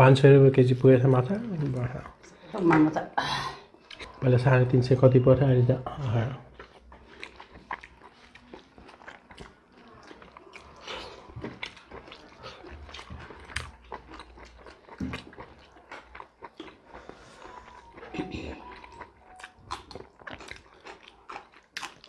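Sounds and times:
chewing smacks: 3.8 - 4.2, 6.0 - 22.0.

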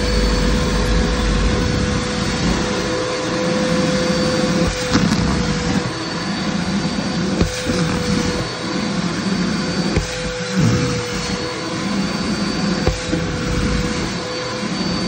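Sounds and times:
vacuum cleaner running: 0.0 - 15.0
nozzle sucking at fabric: 7.3 - 8.6, 9.7 - 12.2.

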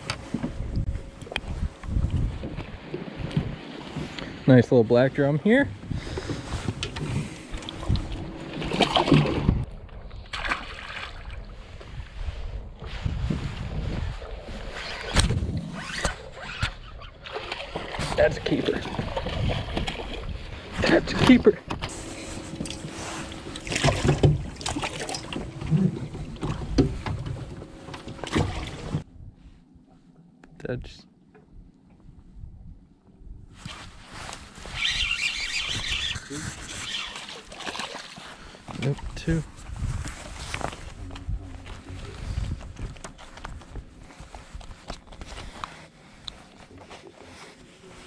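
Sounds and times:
wind buffeting microphone: 0.5 - 4.2, 5.6 - 10.3, 11.3 - 15.9, 39.0 - 45.5
faint steady hum: 21.7 - 33.5
towel rustling: 22.0 - 24.1
rustling and scuffing: 39.5 - 48.0.

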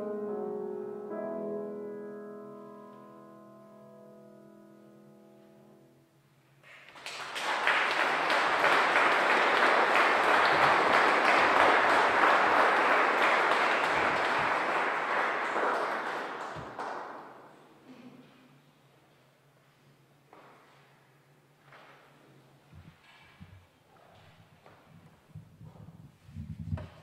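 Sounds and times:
piano chord ringing out: 0.0 - 6.0
audience applauding: 6.6 - 17.5.

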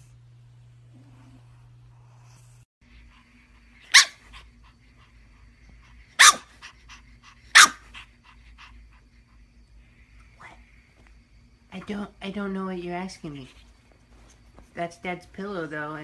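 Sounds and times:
puppy barking: 3.9 - 4.2, 6.2 - 6.6, 7.5 - 7.9.

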